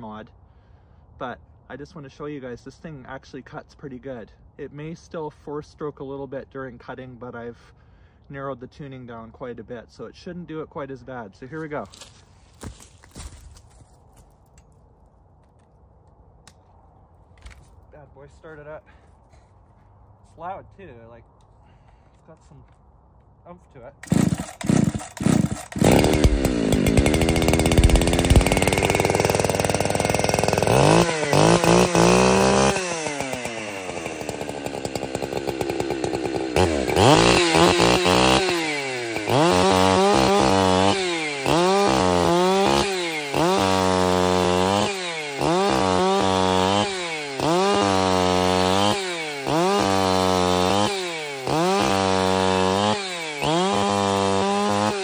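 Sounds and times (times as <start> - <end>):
chainsaw revving and cutting log: 24.0 - 55.0.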